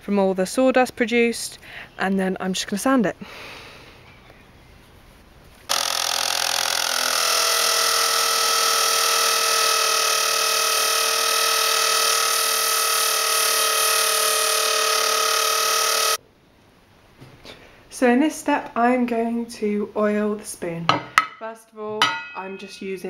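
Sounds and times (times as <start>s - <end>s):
abrasive sanding wood: 5.7s - 16.2s
electric drill motor whine: 5.7s - 16.2s.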